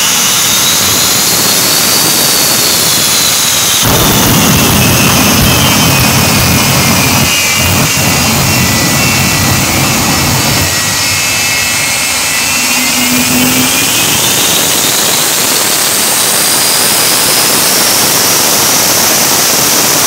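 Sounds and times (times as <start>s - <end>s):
jet engine roaring: 0.0s - 20.0s
low rumble of fireballs: 3.8s - 11.3s.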